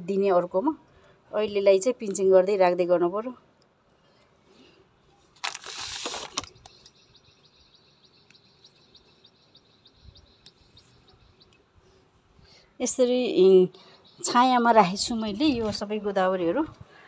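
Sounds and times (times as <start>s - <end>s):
short rustle: 5.2s - 6.8s
rapid high chirping: 6.5s - 11.6s, 13.8s - 15.6s.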